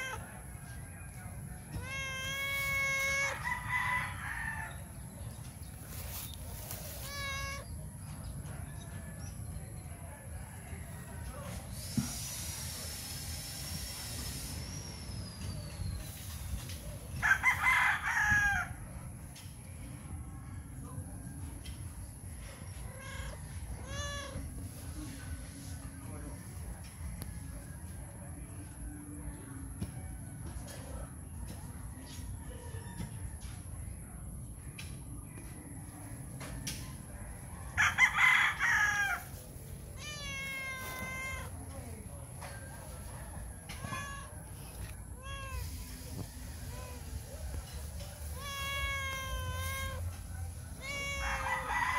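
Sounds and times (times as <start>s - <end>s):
cat meowing: 0.0s - 0.2s, 1.7s - 3.4s, 6.7s - 7.8s, 22.8s - 24.6s, 39.9s - 41.7s, 43.7s - 46.0s, 48.2s - 51.7s
rooster crowing: 0.0s - 5.1s, 17.2s - 18.8s, 37.8s - 41.5s, 45.2s - 51.9s.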